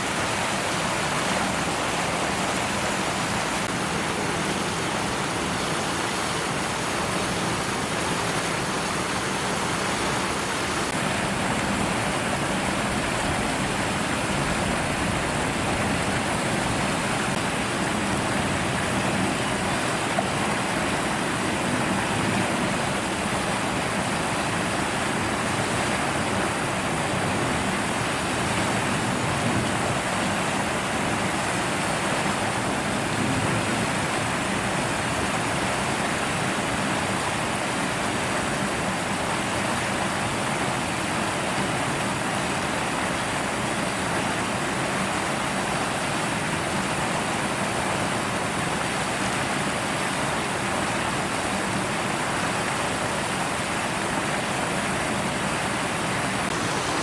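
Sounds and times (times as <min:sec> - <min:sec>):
water rushing down steps: 0:00.0 - 0:57.0.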